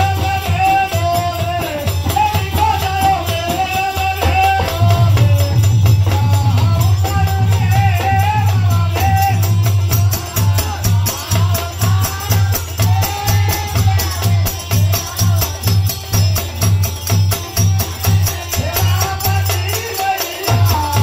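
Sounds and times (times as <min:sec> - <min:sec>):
deep drum beat: 0:00.0 - 0:21.0
folk devotional music: 0:00.0 - 0:21.0
jingling percussion: 0:00.0 - 0:21.0.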